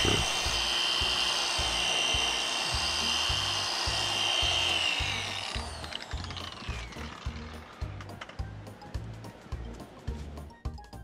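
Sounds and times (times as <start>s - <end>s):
orbital polisher whining: 0.0s - 8.0s.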